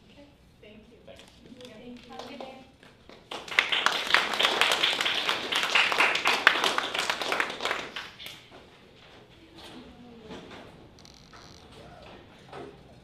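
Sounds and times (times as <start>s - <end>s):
audience applauding: 3.3s - 8.3s.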